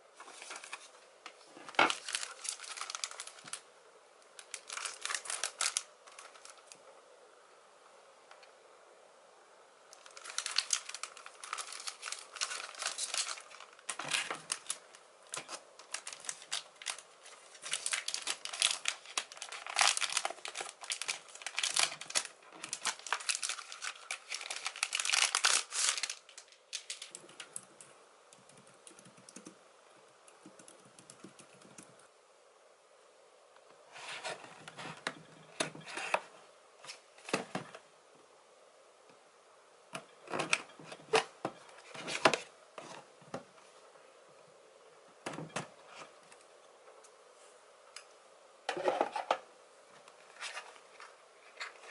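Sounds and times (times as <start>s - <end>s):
plastic wrap crinkling and tearing: 1.6s - 3.6s, 4.3s - 6.8s, 10.0s - 27.5s.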